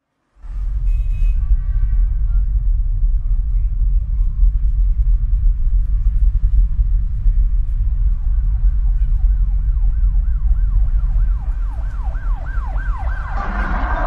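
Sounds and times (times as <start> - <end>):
deep rumble: 0.4 - 14.0
emergency siren wailing: 9.6 - 14.0.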